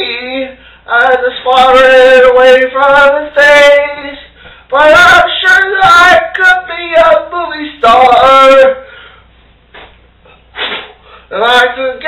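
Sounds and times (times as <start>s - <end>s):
man singing unaccompanied: 0.0s - 8.9s, 11.3s - 12.0s.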